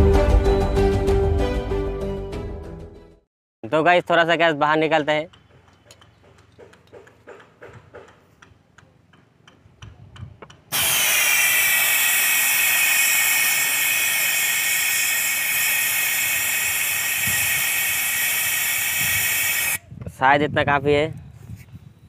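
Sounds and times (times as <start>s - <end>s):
gas spraying hiss: 10.7s - 19.8s.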